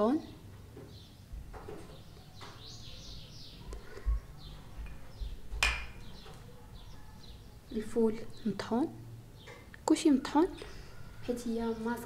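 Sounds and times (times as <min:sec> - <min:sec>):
faint bird chirps: 0:00.9 - 0:08.6
bowls knocking on table: 0:04.8 - 0:06.1.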